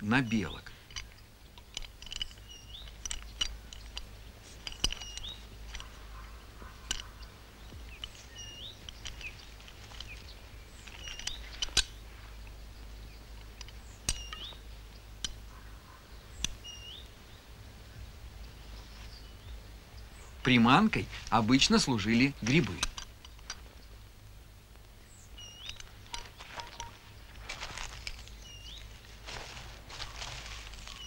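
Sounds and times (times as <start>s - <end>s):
small birds chirping: 0.0s - 31.0s
sharp clicks: 0.9s - 15.5s, 21.0s - 24.0s, 25.6s - 27.0s.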